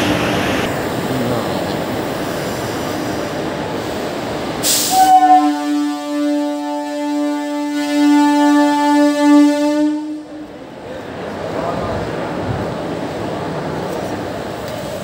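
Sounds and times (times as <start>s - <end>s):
train noise: 0.0s - 15.0s
brief hiss: 3.8s - 5.1s
train horn long note: 4.6s - 10.5s.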